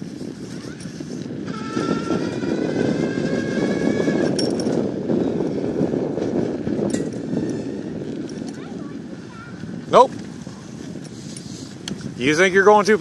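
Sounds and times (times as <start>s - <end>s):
wind rush on microphone: 0.0s - 13.0s
electric motor whine: 0.2s - 8.3s.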